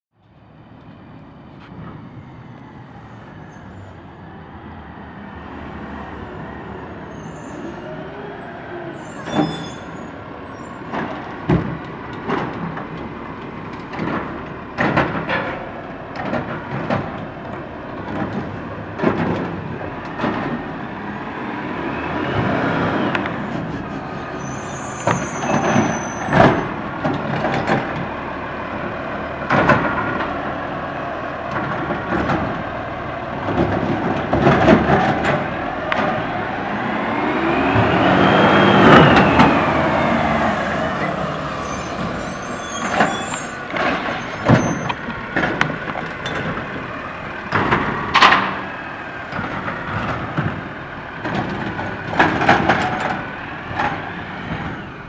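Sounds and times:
garbage truck engine: 0.5 - 55.0
air brakes hissing: 8.8 - 11.2, 40.8 - 45.0.

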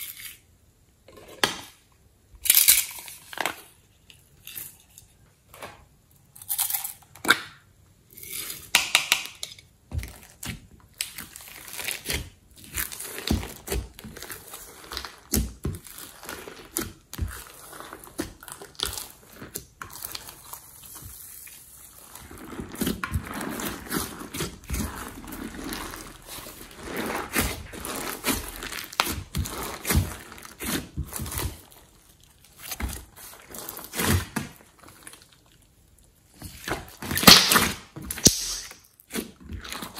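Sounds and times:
slime squelching and popping: 8.6 - 39.9.

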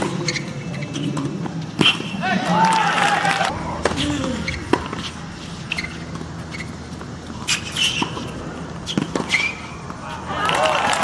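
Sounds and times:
shoes squeaking on court: 0.0 - 2.4, 3.8 - 10.6
racket hitting tennis ball: 3.5 - 10.2.

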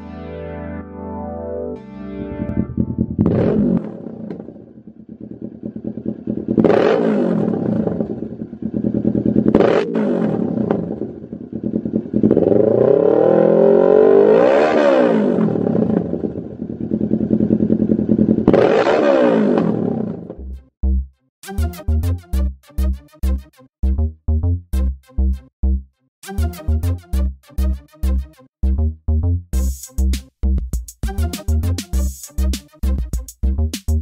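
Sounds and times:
motorcycle engine idling and revving: 2.6 - 20.6.

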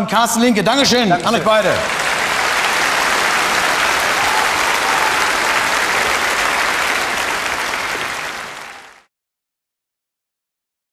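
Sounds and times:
audience applauding: 0.8 - 9.1.

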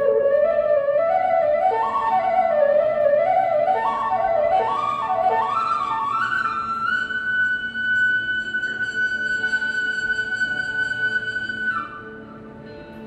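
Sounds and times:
flute melody: 0.0 - 13.0.

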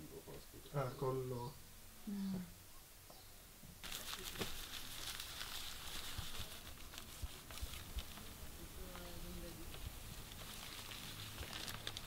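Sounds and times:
cloth rustling on newspaper: 3.8 - 12.0.

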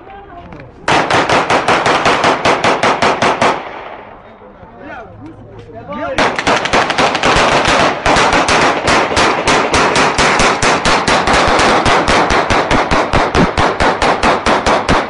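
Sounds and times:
rapid gunfire: 0.9 - 4.0, 6.2 - 15.0.

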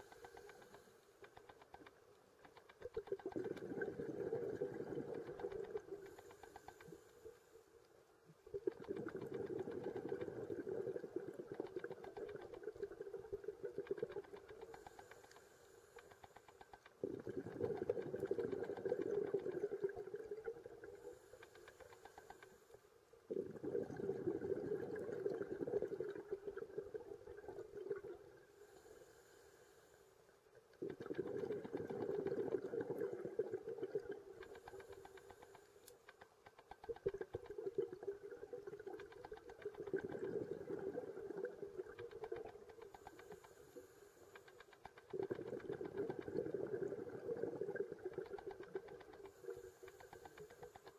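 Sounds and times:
gurgling exhalation bubbles: 3.2 - 5.8, 8.5 - 14.1, 17.0 - 20.9, 23.3 - 28.4, 30.8 - 34.4, 37.0 - 39.1, 39.7 - 42.6, 45.1 - 49.0
faint hiss of inhalation: 14.8 - 16.4, 28.5 - 30.2, 43.0 - 44.5, 49.3 - 50.9.

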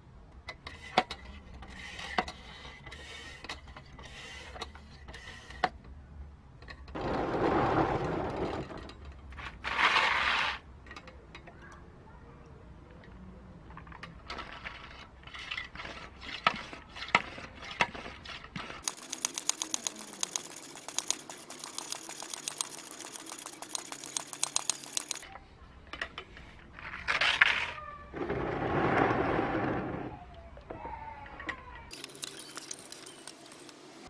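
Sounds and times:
rapid even pump clicking: 18.6 - 25.2, 31.9 - 33.8.

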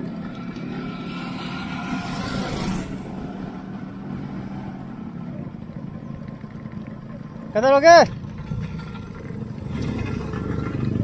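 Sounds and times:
rushing sound: 0.0 - 5.1
motorcycle engines running: 0.0 - 11.0.

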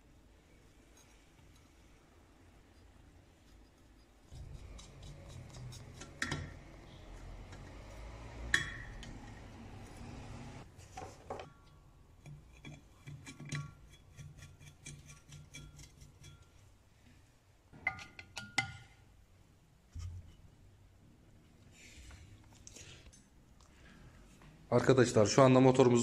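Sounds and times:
screwdriver clicking and tapping metal: 4.8 - 6.5.

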